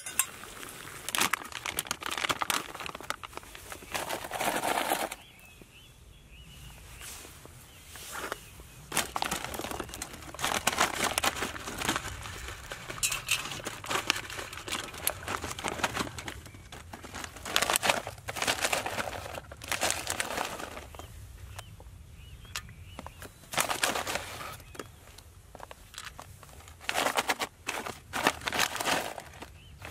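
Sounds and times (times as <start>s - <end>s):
foil pouch crinkling: 0.0s - 5.2s, 8.9s - 21.0s, 23.5s - 24.7s, 25.6s - 29.9s.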